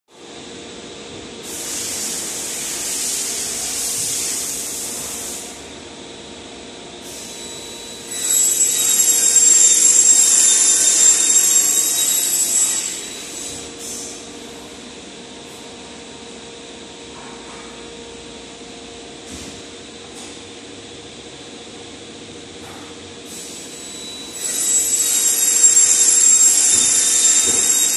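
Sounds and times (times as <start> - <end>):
power tool whining: 8.1 - 13.7, 24.3 - 27.9.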